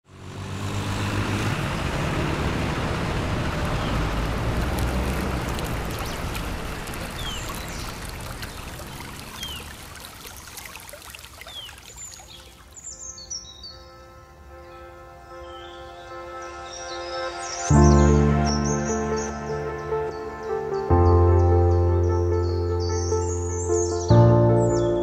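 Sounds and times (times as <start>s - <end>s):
stream flowing: 0.2s - 13.2s.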